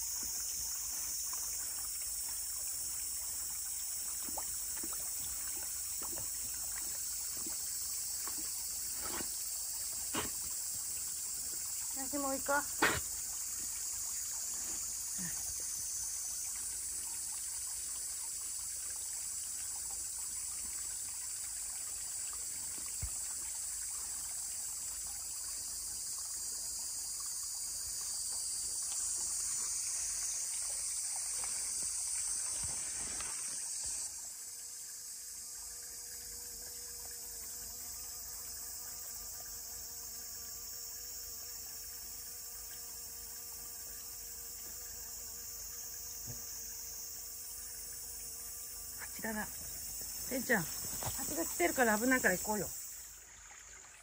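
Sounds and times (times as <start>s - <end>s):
cicadas droning: 0.0s - 54.0s
water trickling: 0.0s - 54.0s
bee buzzing: 4.9s - 16.5s, 29.0s - 52.9s.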